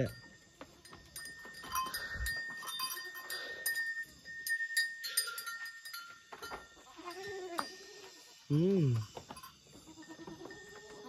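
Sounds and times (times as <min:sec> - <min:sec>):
hooves clicking on bamboo slats: 0:00.0 - 0:03.3, 0:05.0 - 0:07.0, 0:08.9 - 0:11.0.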